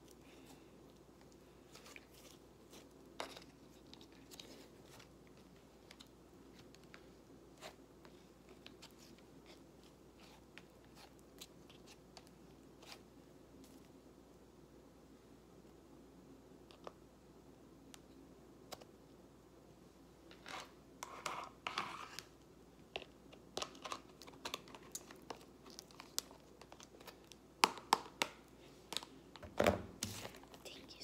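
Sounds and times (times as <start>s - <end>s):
dough squeezed clicks and crackles: 21.1s - 30.6s.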